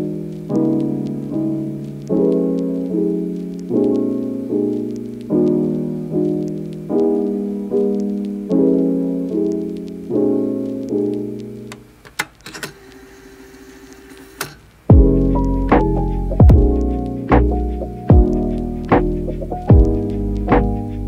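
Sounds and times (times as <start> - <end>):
soft piano chords: 0.0 - 12.0, 14.8 - 21.0
clicks: 10.8 - 14.8.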